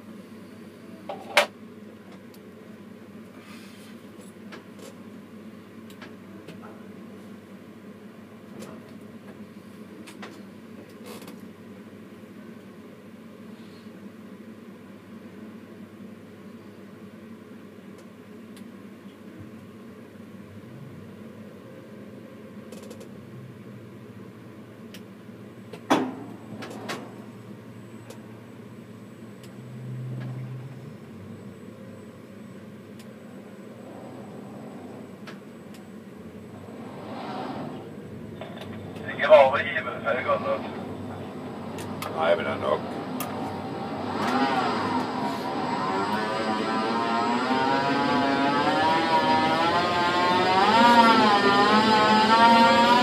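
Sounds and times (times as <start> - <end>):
steady low hum: 0.0 - 53.0.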